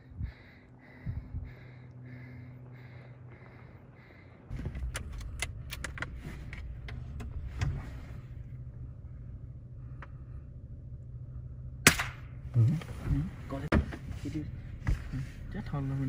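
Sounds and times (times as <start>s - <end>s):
vehicle engine rumble: 0.0s - 16.0s
sharp crack: 11.8s - 12.4s.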